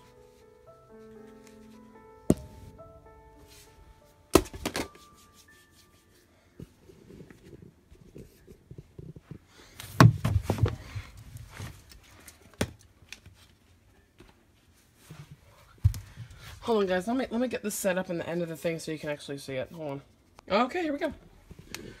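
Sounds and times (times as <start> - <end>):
sharp knock: 2.3 - 2.7.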